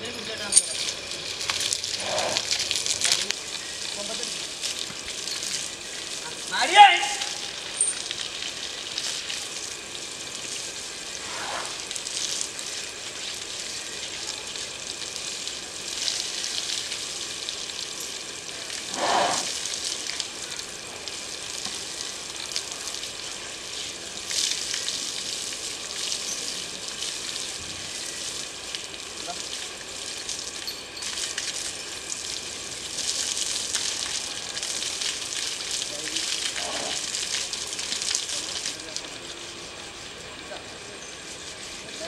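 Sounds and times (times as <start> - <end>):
water jet spraying hiss: 0.0 - 42.0
water splashing: 10.4 - 12.6.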